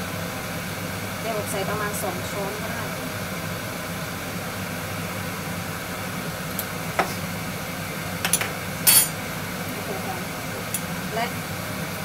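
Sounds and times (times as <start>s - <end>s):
kitchen background hum: 0.0s - 12.0s
metal spoon clinking down: 8.3s - 9.2s.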